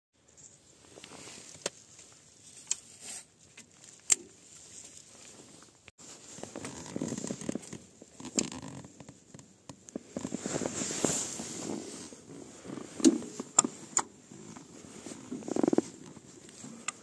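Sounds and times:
boot scraping on footrest: 6.0 - 9.2, 10.0 - 16.8.

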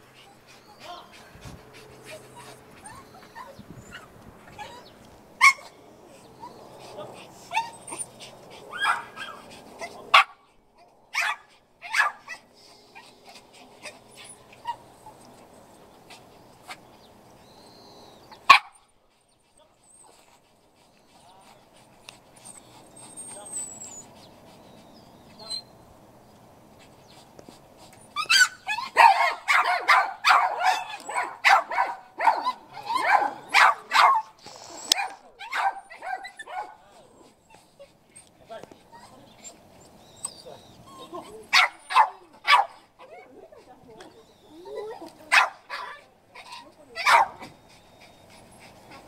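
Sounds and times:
dog barking: 11.2 - 12.2, 29.0 - 34.3, 34.9 - 36.8, 41.5 - 42.8, 45.3 - 45.9, 47.0 - 47.4.

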